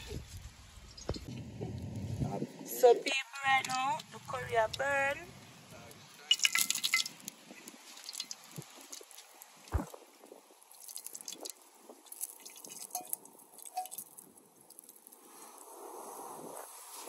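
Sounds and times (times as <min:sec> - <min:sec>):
fire crackling: 0:00.0 - 0:17.0
food sizzling in a pot: 0:06.1 - 0:17.0.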